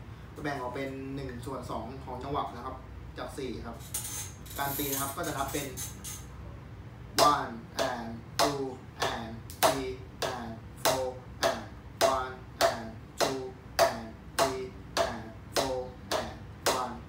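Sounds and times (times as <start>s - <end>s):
drumsticks on practice pad: 3.8s - 6.3s, 7.2s - 17.0s.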